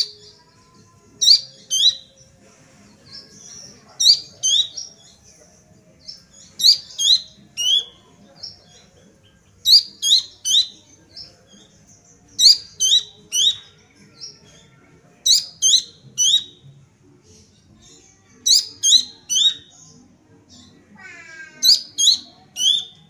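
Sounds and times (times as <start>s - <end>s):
bird singing high whistled notes: 1.2s - 2.2s.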